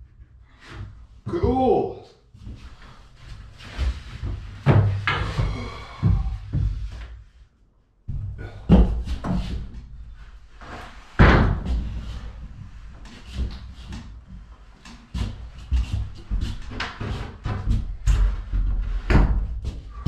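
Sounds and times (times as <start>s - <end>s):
plywood sheet knocking and thudding: 11.2s - 12.1s.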